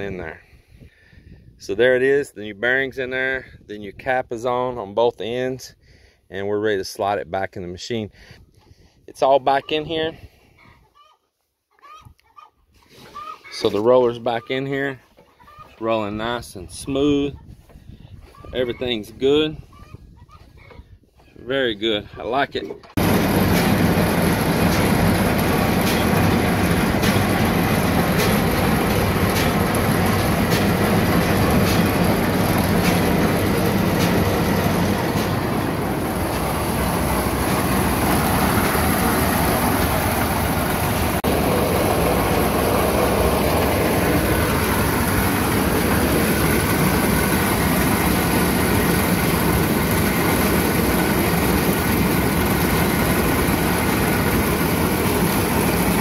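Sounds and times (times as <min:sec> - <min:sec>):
baler machine running: 0:23.0 - 0:56.0.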